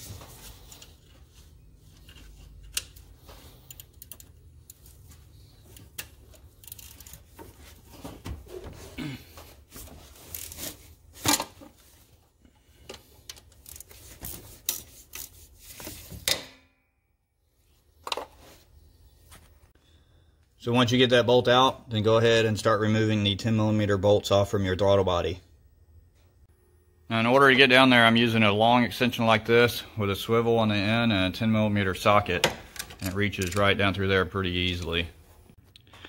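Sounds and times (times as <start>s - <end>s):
ratchet clicks and knocks: 5.8s - 7.2s.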